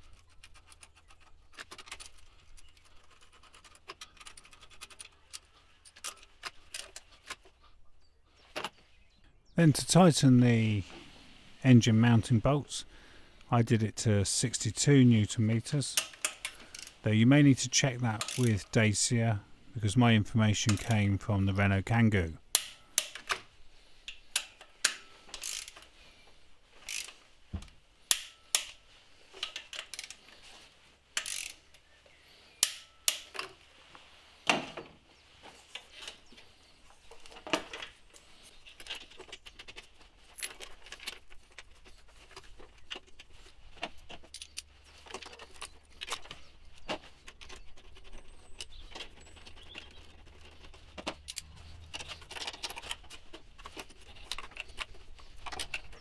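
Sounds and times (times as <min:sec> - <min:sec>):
metallic clicks of hand tools: 0:18.2 - 0:18.6, 0:20.6 - 0:21.0, 0:22.5 - 0:23.4, 0:24.1 - 0:25.9, 0:26.8 - 0:27.2, 0:28.1 - 0:28.8, 0:31.2 - 0:31.8, 0:32.6 - 0:33.6, 0:44.1 - 0:56.0.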